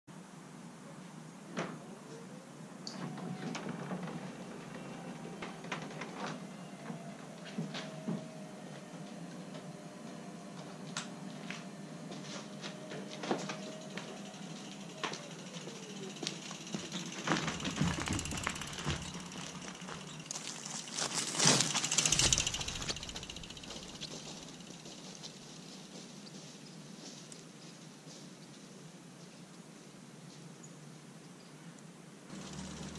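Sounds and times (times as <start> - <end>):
garage door motor hum: 6.8 - 25.6, 32.3 - 32.9
mechanism clicks and creaks: 12.6 - 25.5, 32.3 - 32.9.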